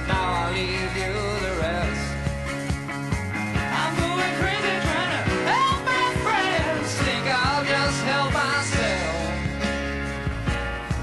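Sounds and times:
person singing: 0.0 - 2.3, 3.6 - 9.8
acoustic instruments: 0.0 - 11.0
drums beating: 0.0 - 11.0.

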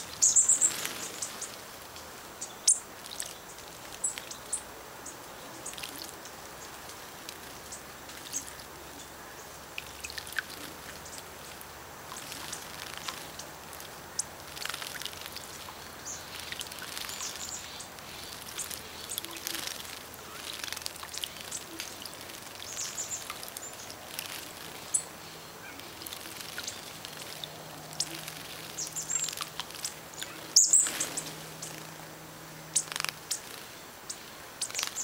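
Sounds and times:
songbirds chirping: 0.0 - 35.0
bird wingbeats: 0.3 - 1.9, 10.4 - 31.9, 32.8 - 33.8.

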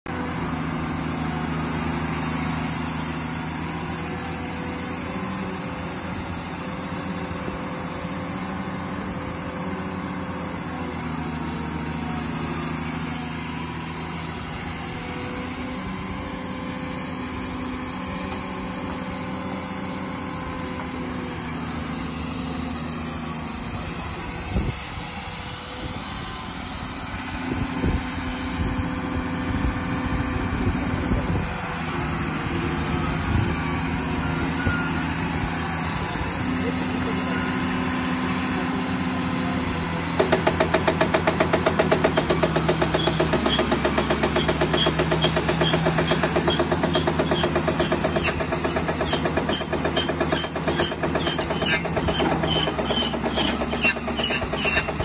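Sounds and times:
drilling rig engine running: 0.1 - 55.0
sharp knocks: 40.2 - 55.0.

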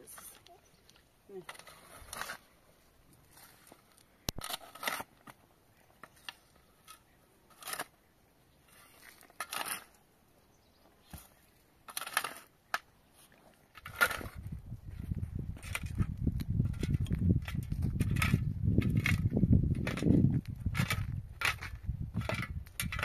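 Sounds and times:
scraping and crunching noises: 0.0 - 10.1, 10.8 - 23.0.

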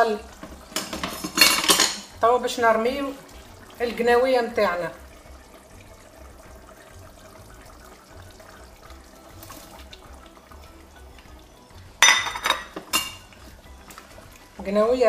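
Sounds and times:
stew simmering: 0.0 - 15.0
utensil clattering against pot: 0.4 - 2.1, 12.0 - 13.3.

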